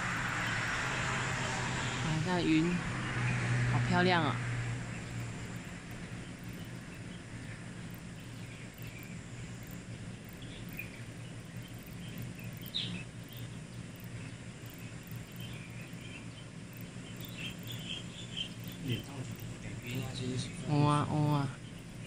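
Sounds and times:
small birds chirping: 0:00.0 - 0:22.0
steady low hum: 0:00.0 - 0:22.0.

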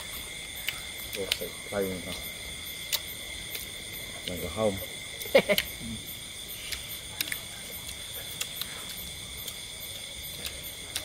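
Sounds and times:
night insects trilling: 0:00.0 - 0:11.0
sharp clicks: 0:02.9 - 0:04.4, 0:06.6 - 0:09.6.

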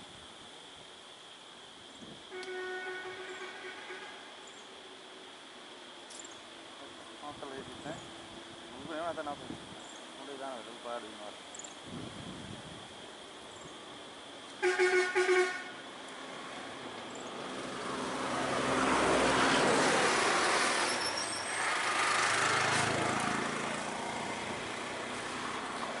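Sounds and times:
vehicle horn toots: 0:02.3 - 0:04.3, 0:14.6 - 0:15.8
motor vehicle passing: 0:16.2 - 0:26.0.

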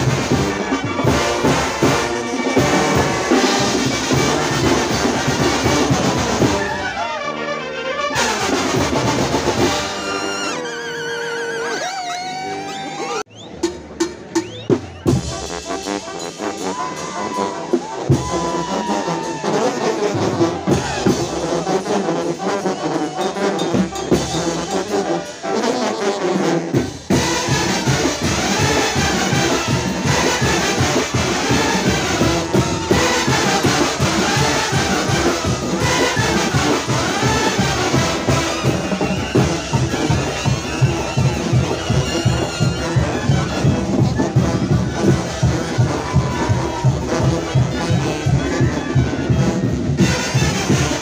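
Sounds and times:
fast steady drum beat: 0:00.0 - 0:06.6, 0:26.6 - 0:51.0
brass bands playing loudly: 0:00.0 - 0:51.0.

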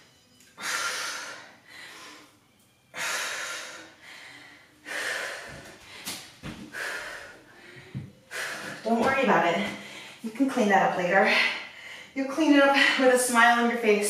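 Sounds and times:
woman breathing hard: 0:00.5 - 0:08.9, 0:09.6 - 0:10.3, 0:11.3 - 0:12.2.

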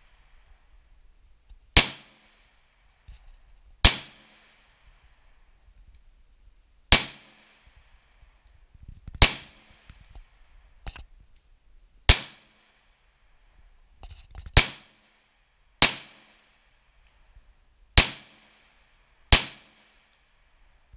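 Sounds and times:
pistol shots with echo: 0:01.8 - 0:02.6, 0:03.8 - 0:04.8, 0:06.9 - 0:07.7, 0:09.2 - 0:09.9, 0:12.1 - 0:12.7, 0:14.6 - 0:15.1, 0:15.8 - 0:16.4, 0:18.0 - 0:20.0.

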